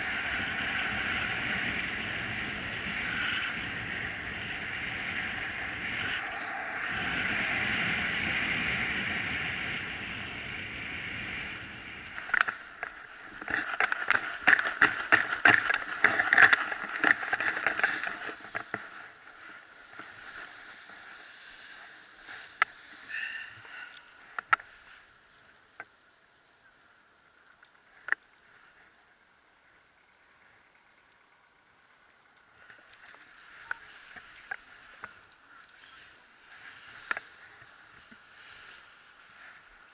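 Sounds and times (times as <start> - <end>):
wind rushing over microphone: 0.0 - 24.7
clicks and rustles: 12.0 - 26.0, 32.0 - 38.3.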